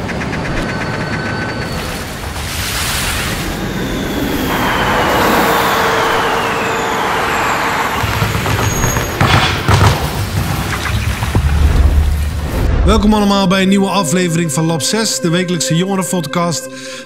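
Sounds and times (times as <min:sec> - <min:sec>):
whoosh: 0:00.0 - 0:08.9
rushing noise with falling tone: 0:00.0 - 0:13.4.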